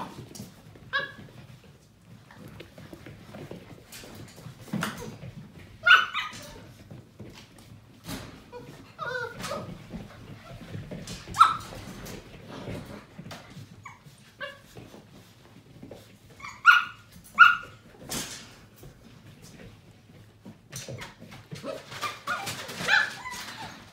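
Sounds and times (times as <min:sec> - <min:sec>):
light knocks and scuffling: 0:00.0 - 0:23.9
puppies yipping and barking: 0:05.8 - 0:06.6, 0:08.5 - 0:09.8, 0:11.1 - 0:12.1, 0:16.4 - 0:17.8, 0:21.6 - 0:23.9.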